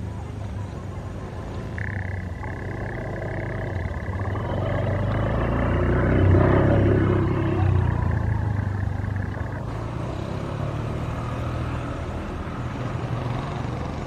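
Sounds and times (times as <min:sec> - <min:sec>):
locomotive engine rumble: 0:00.0 - 0:10.1.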